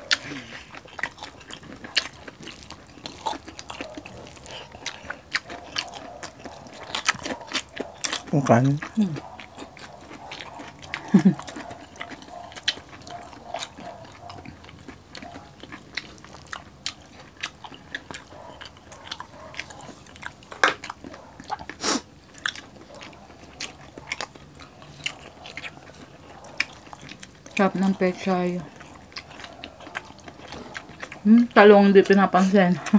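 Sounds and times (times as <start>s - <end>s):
chewing and crunching fried food: 0.0s - 32.9s.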